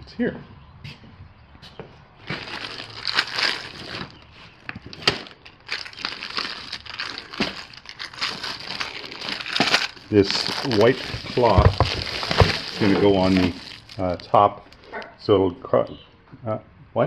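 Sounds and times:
plastic packaging crinkling: 2.2s - 14.9s.

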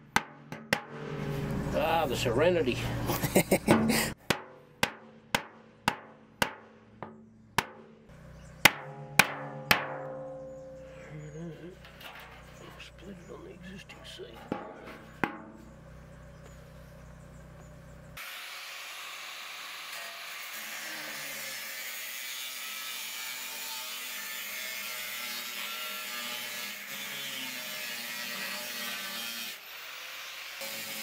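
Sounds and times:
angle grinder cutting steel: 18.2s - 31.0s.

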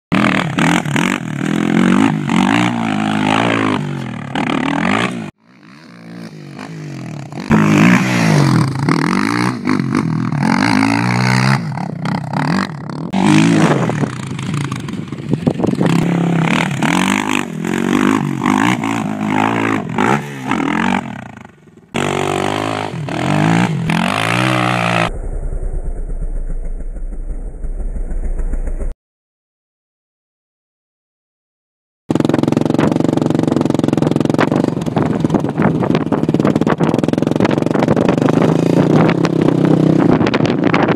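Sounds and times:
quad engine revving: 0.1s - 28.9s, 32.1s - 40.8s
dirt and gravel clatter: 11.6s - 22.8s, 32.1s - 40.9s
steady low hum: 24.6s - 28.9s.

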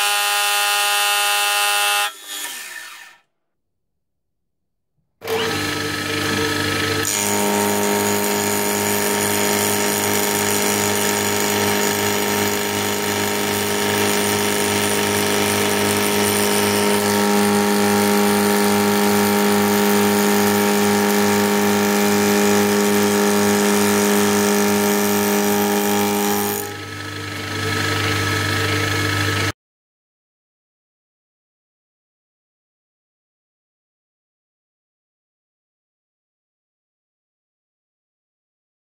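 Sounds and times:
milling machine cutting steel: 0.0s - 3.2s, 5.2s - 29.5s.

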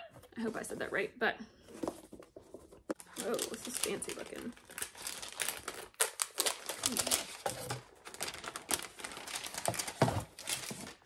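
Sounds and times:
tissue paper crinkling: 1.8s - 11.0s.

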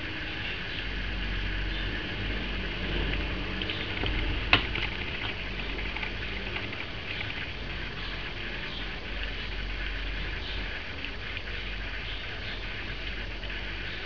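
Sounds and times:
steady low hum: 0.0s - 14.0s
soft wet clicking and rustling: 2.9s - 13.8s.

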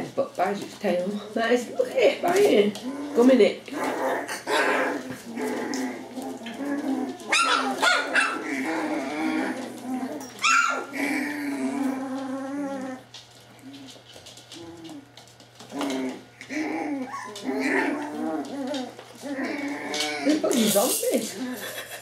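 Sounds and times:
puppies yapping and whining: 2.8s - 20.5s.

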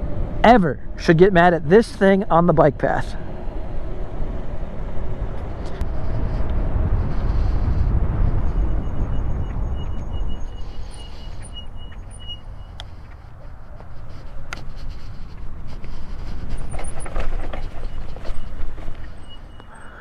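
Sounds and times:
wind buffeting microphone: 3.3s - 20.0s
faint high chirp: 8.6s - 13.2s, 17.7s - 20.0s
tyres crunching over dry grass: 12.9s - 20.0s.

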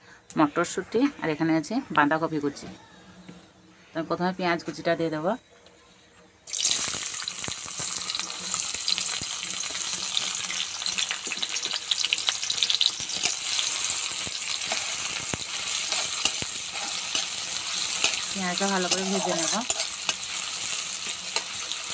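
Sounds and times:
onions sizzling in hot oil: 6.5s - 21.9s
metal spatula stirring: 12.5s - 21.9s.

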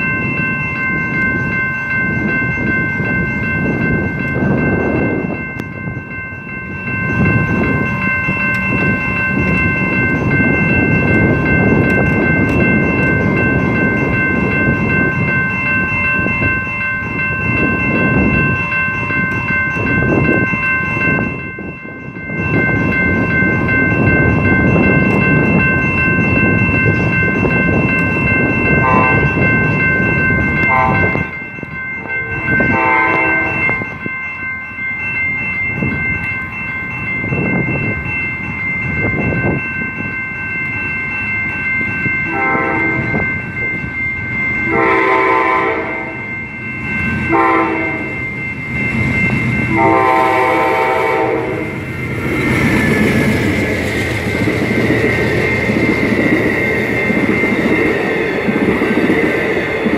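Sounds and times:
locomotive air horn blasts: 28.8s - 29.3s, 30.7s - 31.2s, 32.3s - 33.8s, 42.3s - 43.1s, 44.7s - 46.2s, 47.3s - 48.1s, 49.7s - 51.7s.

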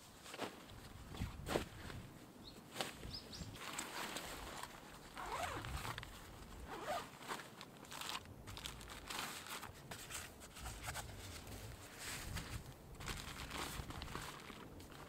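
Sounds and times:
nylon fabric rustling: 3.6s - 15.0s
zipper pulled open: 5.1s - 6.0s, 6.6s - 7.1s.

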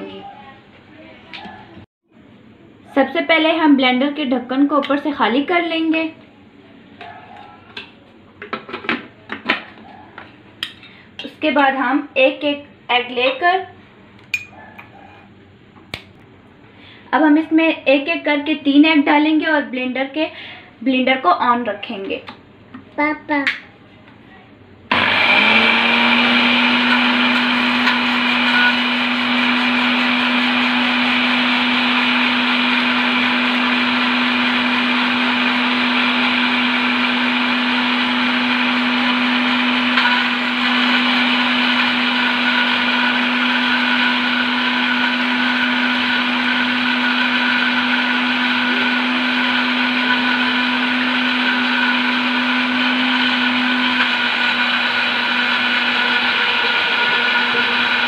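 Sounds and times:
blender motor humming: 24.9s - 58.0s.

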